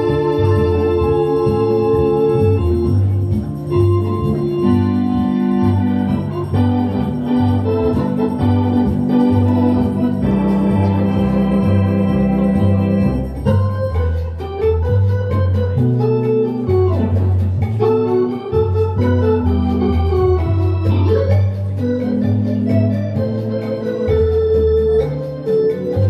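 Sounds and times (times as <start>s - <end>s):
organ playing chords: 0.0s - 26.0s
pulsing bass line: 0.0s - 26.0s.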